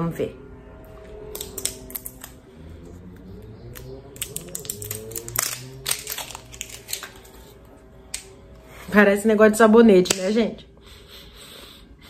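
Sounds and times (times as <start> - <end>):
plastic packaging clicks and rustles: 3.8 - 7.6.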